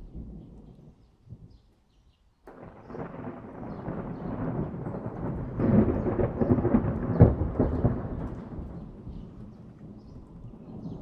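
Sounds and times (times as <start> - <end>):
thunder rumbling and cracking: 2.5 - 11.0.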